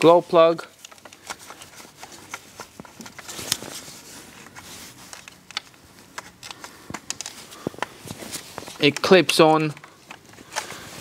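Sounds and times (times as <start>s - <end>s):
plastic connectors clicking: 0.8s - 3.6s, 4.5s - 7.9s, 8.8s - 10.8s.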